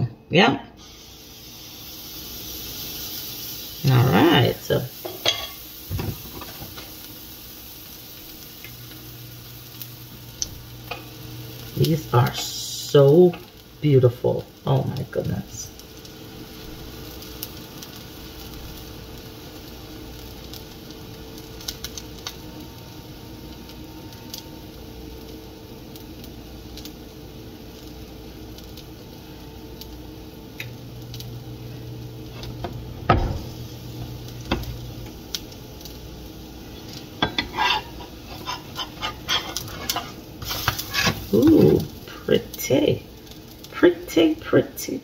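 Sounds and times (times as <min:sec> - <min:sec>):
pancake sizzling in a frying pan: 0:00.0 - 0:45.0
spatula scraping a pan: 0:36.8 - 0:41.4.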